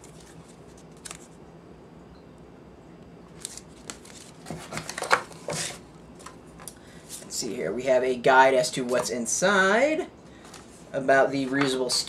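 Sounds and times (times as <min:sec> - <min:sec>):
paper packaging rustling: 0:00.0 - 0:01.4, 0:03.4 - 0:06.3.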